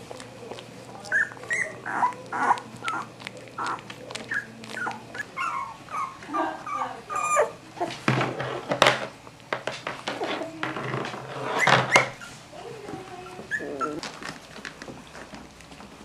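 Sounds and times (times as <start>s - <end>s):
puppies whimpering: 0.0s - 8.0s, 11.4s - 14.6s.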